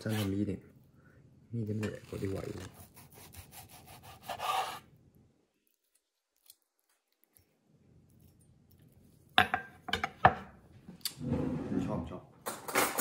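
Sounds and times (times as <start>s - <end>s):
knife slicing steak on board: 2.7s - 4.8s.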